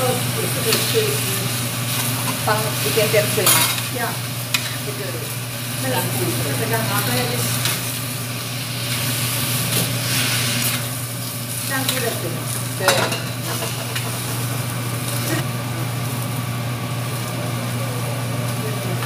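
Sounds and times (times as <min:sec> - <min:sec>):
vegetables sizzling in a wok: 0:00.0 - 0:19.0.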